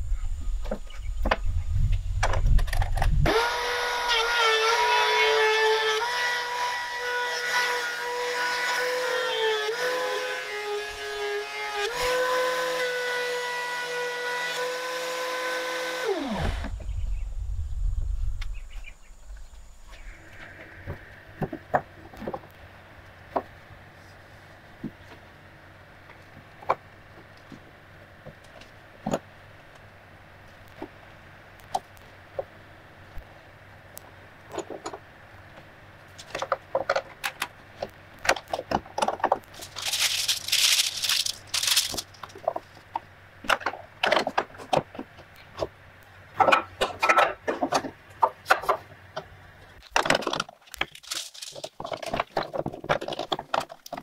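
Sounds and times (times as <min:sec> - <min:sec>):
clamp parts rattling and scraping: 0:02.2 - 0:03.2, 0:38.3 - 0:42.8, 0:49.8 - 0:54.0.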